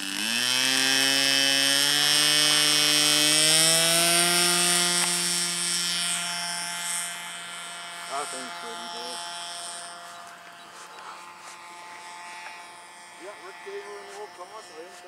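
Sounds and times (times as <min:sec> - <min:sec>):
model plane motor buzzing whine: 0:00.0 - 0:15.0.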